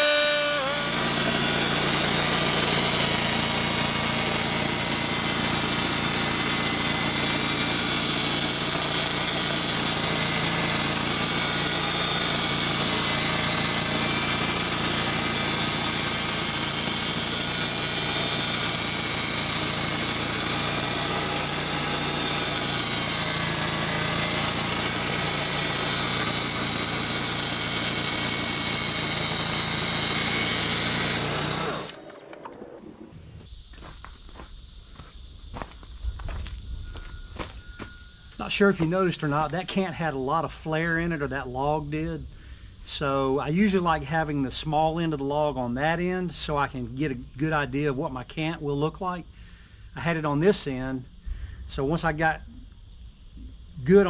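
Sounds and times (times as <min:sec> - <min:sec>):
sawmill sawing a log: 0:00.0 - 0:32.2.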